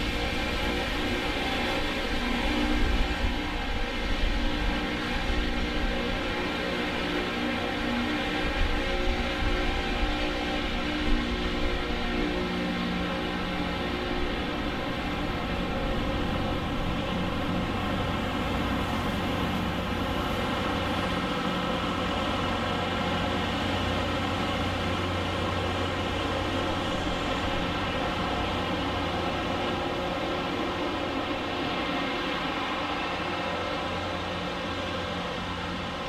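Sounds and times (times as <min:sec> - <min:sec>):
train rushing rumble: 0:00.0 - 0:36.0
diesel engines humming: 0:11.6 - 0:36.0.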